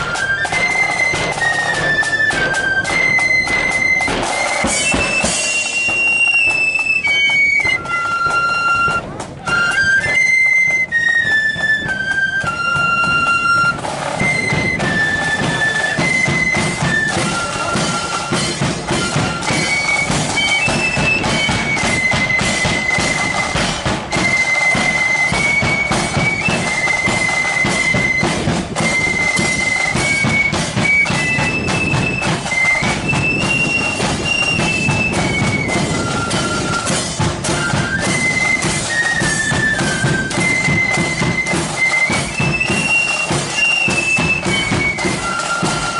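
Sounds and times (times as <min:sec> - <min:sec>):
drum beats: 0:00.0 - 0:45.9
flutes playing melody: 0:00.0 - 0:45.9.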